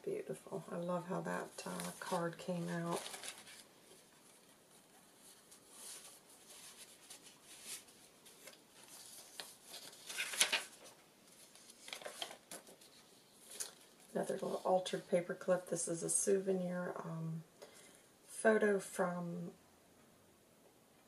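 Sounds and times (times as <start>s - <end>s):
paper pages rustling: 1.4s - 14.8s.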